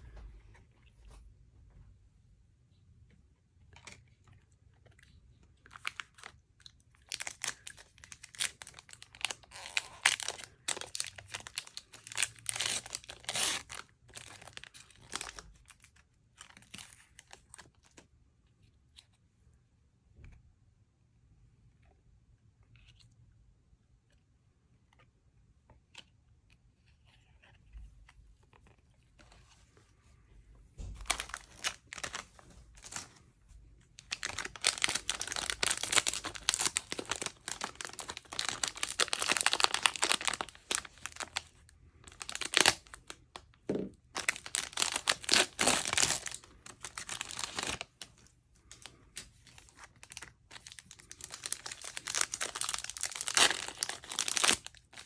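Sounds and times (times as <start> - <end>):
plastic foil wrappers crinkling: 5.6 - 17.9, 31.0 - 33.1, 34.0 - 43.5, 44.1 - 55.0.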